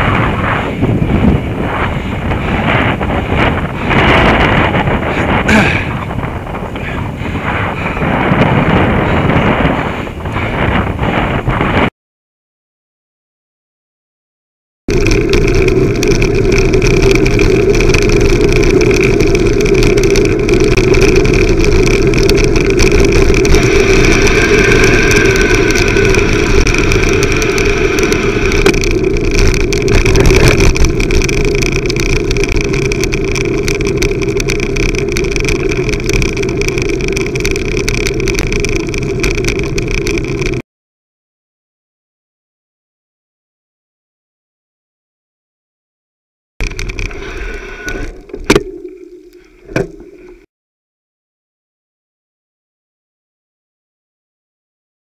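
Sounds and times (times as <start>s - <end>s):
bicycle road noise: 0.0s - 11.9s, 14.9s - 40.6s, 46.6s - 50.5s
bike rattling over cattle grid: 0.0s - 11.9s, 14.9s - 40.6s, 46.6s - 50.5s
wind noise: 0.0s - 11.9s, 14.9s - 40.6s, 46.6s - 50.5s.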